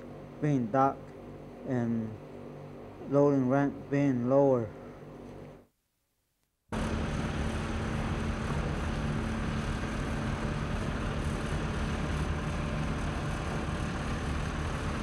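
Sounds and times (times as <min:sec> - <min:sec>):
heavy marine engine running: 0:06.7 - 0:15.0.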